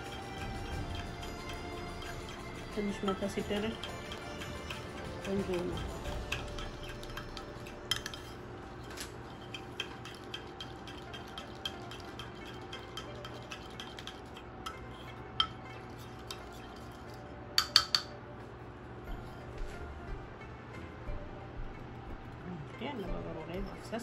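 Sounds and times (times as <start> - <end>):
spoon clinking and scraping dish: 0.0 - 18.2.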